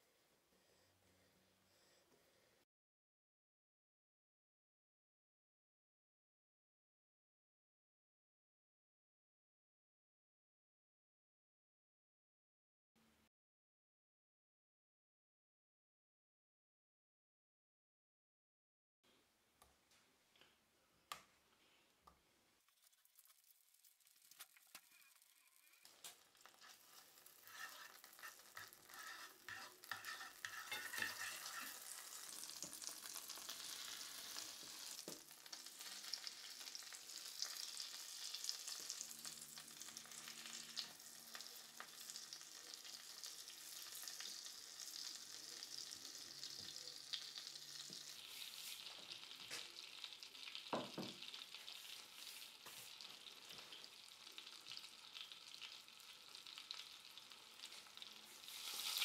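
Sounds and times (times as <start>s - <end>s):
chicken frying: 22.6s - 59.0s
oil sizzling in a skillet: 22.7s - 59.0s.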